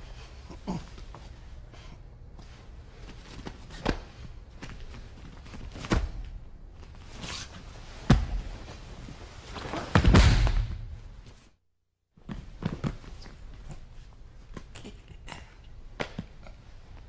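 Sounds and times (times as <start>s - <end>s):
body slamming onto mat: 8.1s - 8.5s, 9.7s - 11.0s.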